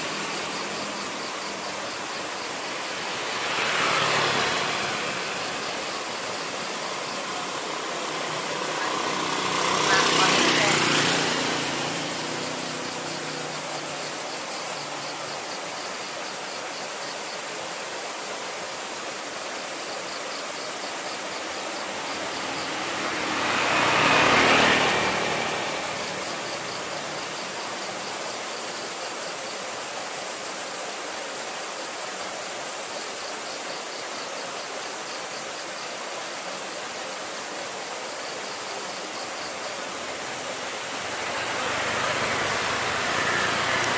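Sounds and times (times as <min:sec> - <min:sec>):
vehicle passing by: 0:00.0 - 0:15.7, 0:21.1 - 0:28.4, 0:38.8 - 0:43.9
distant road traffic hiss: 0:00.0 - 0:43.9.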